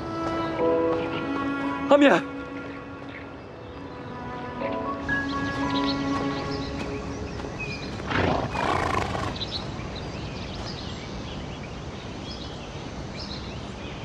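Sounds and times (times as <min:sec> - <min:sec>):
horse snorting call: 0:08.1 - 0:09.4.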